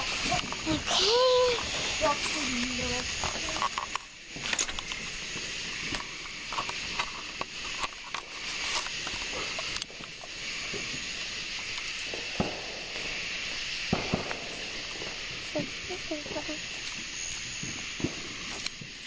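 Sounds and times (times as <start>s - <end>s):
night insects hissing: 0.0s - 19.0s.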